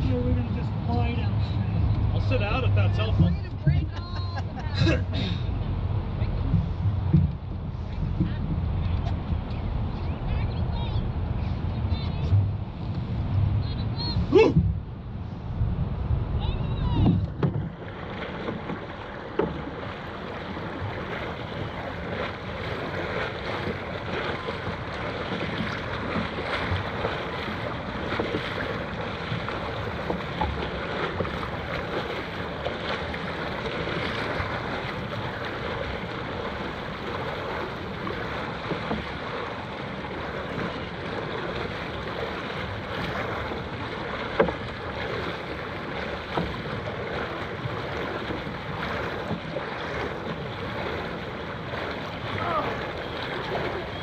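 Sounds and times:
water splashing and sloshing: 0.0s - 54.0s
wind noise on microphone: 3.0s - 18.9s.

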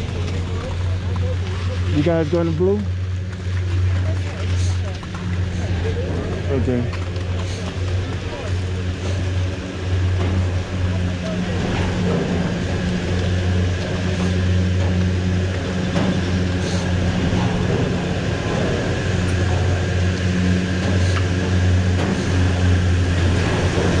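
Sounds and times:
higher hum: 0.0s - 24.0s
machinery low hum: 0.0s - 24.0s.

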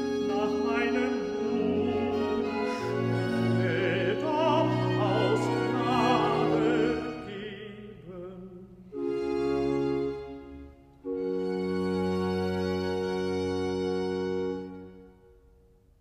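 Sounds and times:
tenor singing with vibrato: 0.0s - 9.0s.

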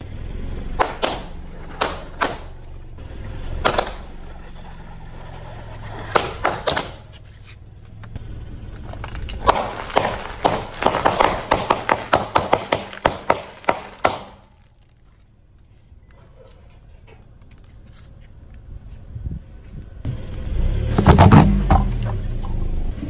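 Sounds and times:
car engine rumble: 0.0s - 23.0s
tyre crushing brittle objects: 8.7s - 15.4s.

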